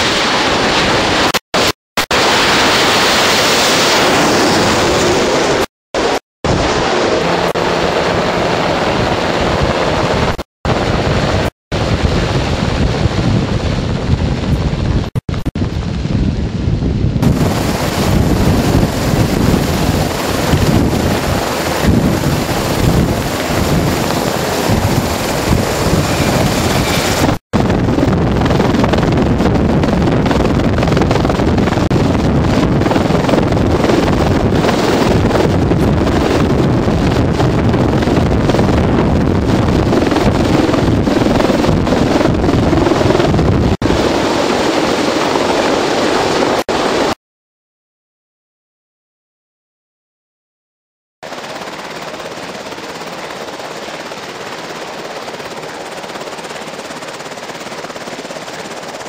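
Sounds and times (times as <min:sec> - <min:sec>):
helicopter rotors and engines: 0:00.0 - 0:47.2, 0:51.2 - 0:59.0
wind buffeting microphone: 0:06.5 - 0:47.1.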